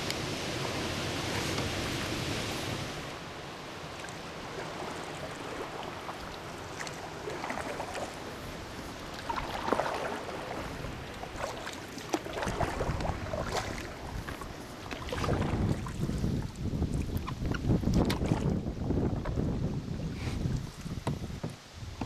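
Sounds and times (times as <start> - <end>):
paddle strokes splashing water: 0.0 - 22.0
rush of rapids: 0.0 - 22.0
wind buffeting microphone: 7.4 - 22.0.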